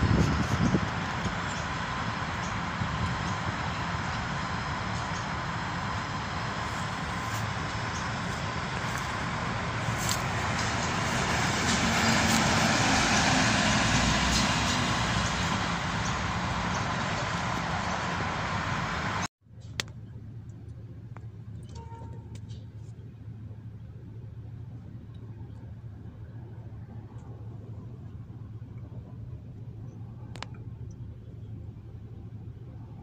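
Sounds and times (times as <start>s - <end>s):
train wheels on rails: 0.0s - 19.3s
distant train rumble: 0.0s - 33.0s
locomotive engine drone: 0.0s - 33.0s.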